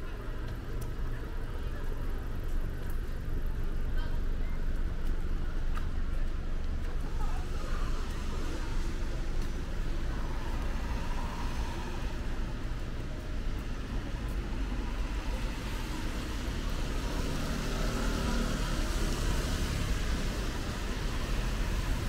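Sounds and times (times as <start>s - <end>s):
low traffic rumble: 0.0s - 22.0s
tyre hiss on wet road: 7.3s - 12.7s, 13.6s - 22.0s.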